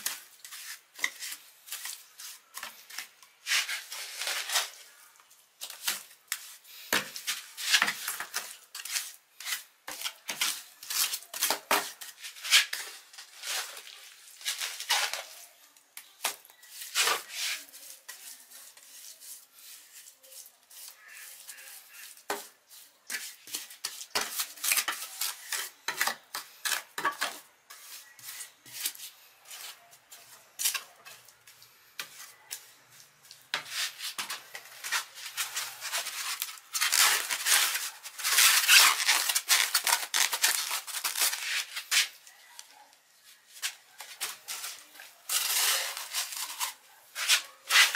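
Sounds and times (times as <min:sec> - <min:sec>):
hand work on sheet metal: 0:44.4 - 0:47.9.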